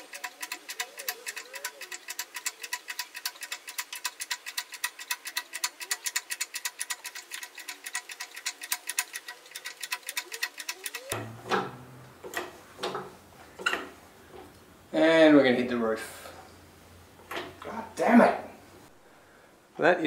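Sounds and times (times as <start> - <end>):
rapid even clicking: 0.0 - 14.6.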